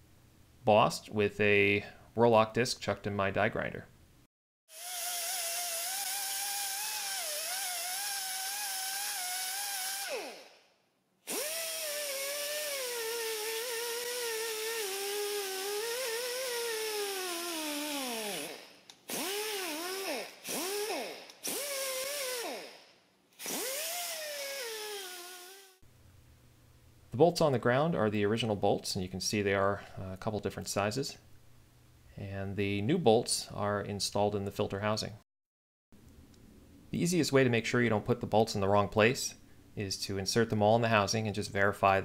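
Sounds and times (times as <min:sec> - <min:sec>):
die grinder whining: 0:04.7 - 0:10.6, 0:11.3 - 0:22.8, 0:23.4 - 0:25.8.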